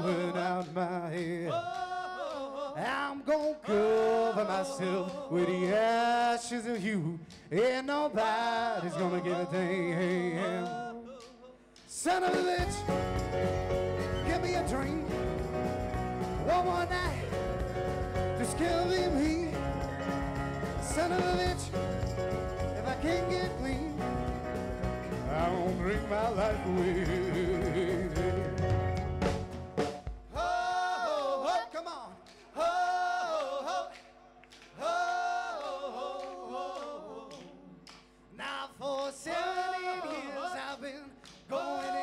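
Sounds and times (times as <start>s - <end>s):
person singing unaccompanied: 0.0s - 6.1s, 8.2s - 28.7s
folk-rock band playing: 12.3s - 30.3s.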